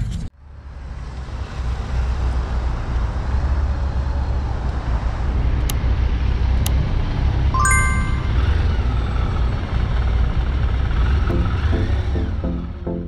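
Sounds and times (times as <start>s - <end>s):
road traffic passing: 0.4s - 13.0s
motorcycle engines idling: 9.0s - 13.0s.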